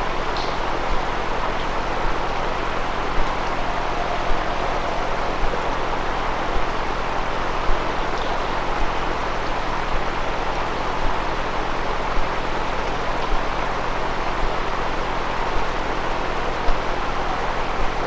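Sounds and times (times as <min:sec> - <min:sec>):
steady hiss: 0:00.0 - 0:18.0
faint drawn-out tone: 0:03.2 - 0:06.8.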